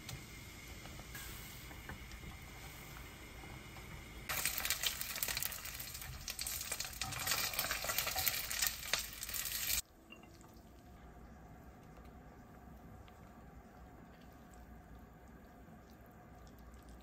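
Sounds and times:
food sizzling in a pan: 4.3s - 9.8s.

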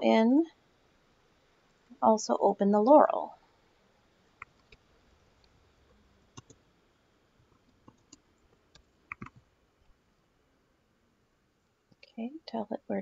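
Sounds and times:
mouse and keyboard clicks: 7.8s - 9.4s.

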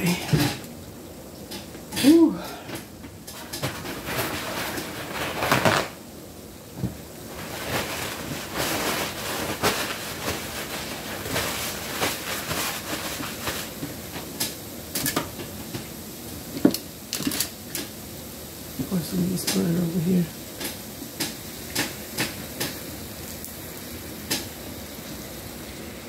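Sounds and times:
paper towel rustling: 3.7s - 6.0s, 6.8s - 14.4s.

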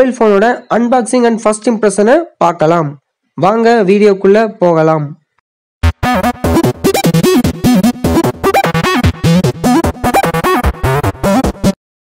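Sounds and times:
electronic music with sliding notes: 5.8s - 11.8s.

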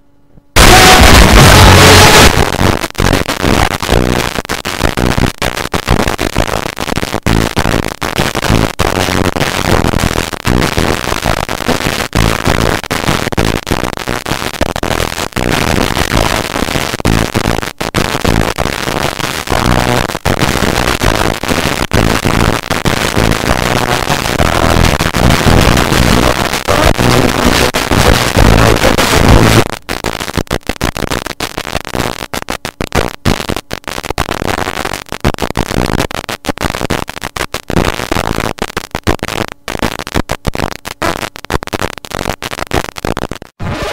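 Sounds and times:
low buzz: 0.0s - 4.2s
radio static hissing and crackling: 0.0s - 43.9s.

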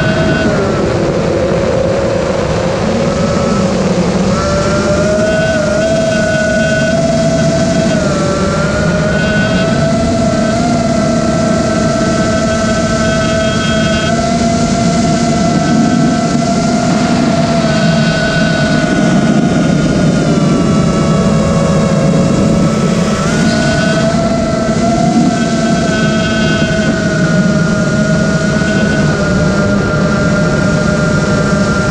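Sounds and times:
prop wash and wind: 0.0s - 31.9s
quadcopter motor whine: 0.0s - 31.9s.

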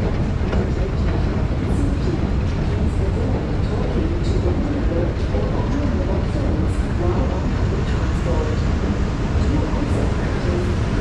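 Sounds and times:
escalator mechanical rumble: 0.0s - 11.0s.

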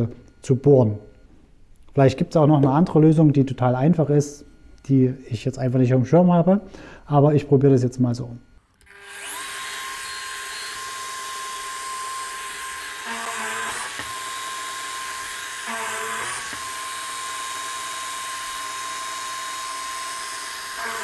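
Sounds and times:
drill press whining: 8.6s - 21.0s
drill bit boring into wood: 8.7s - 21.0s.

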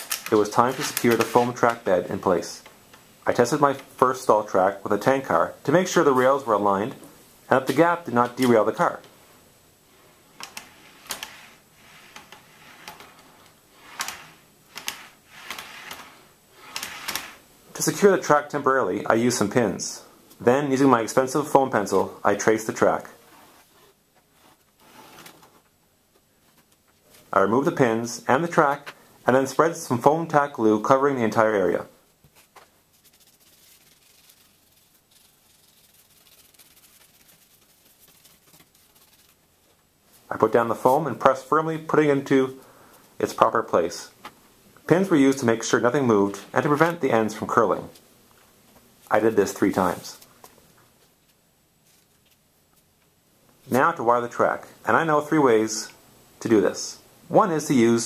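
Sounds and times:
soft rolling noise: 0.0s - 42.6s
glue spreading on foam: 33.0s - 39.4s.

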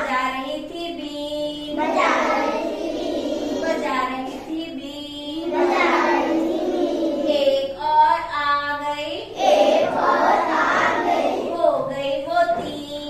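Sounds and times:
children singing in unison: 1.6s - 4.6s, 5.3s - 7.8s, 9.3s - 12.6s.

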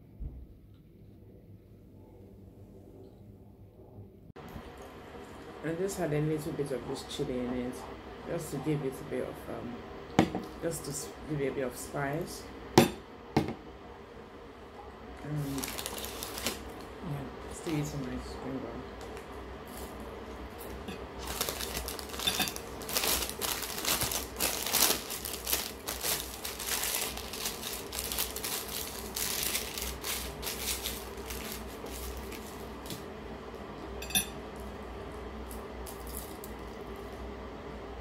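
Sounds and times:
paper tissue rustling: 15.3s - 16.9s, 19.0s - 33.0s.

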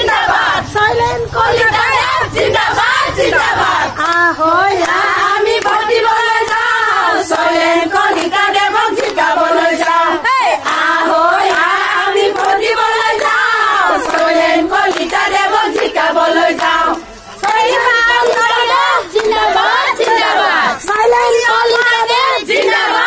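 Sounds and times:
women chanting in unison: 0.0s - 23.0s
hand clapping: 4.0s - 10.0s, 10.6s - 23.0s.

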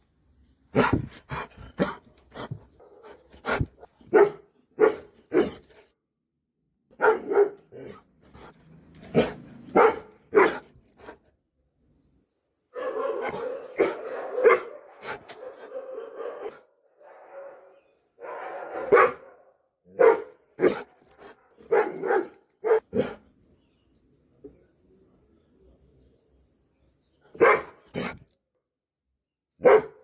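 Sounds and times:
dog barking: 0.7s - 1.1s, 2.8s - 5.6s, 6.9s - 8.0s, 9.1s - 10.7s, 12.7s - 20.9s, 21.6s - 23.2s, 27.3s - 28.2s, 29.6s - 30.0s.

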